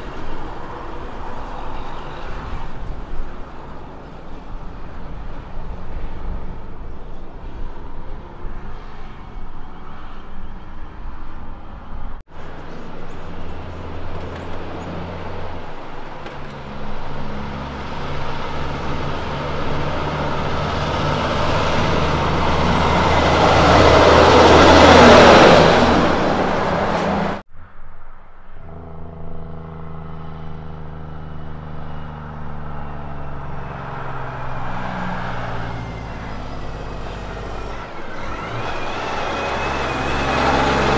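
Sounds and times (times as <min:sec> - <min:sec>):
truck driving past: 0:00.0 - 0:40.9
truck engine running: 0:12.3 - 0:27.4, 0:28.6 - 0:40.9.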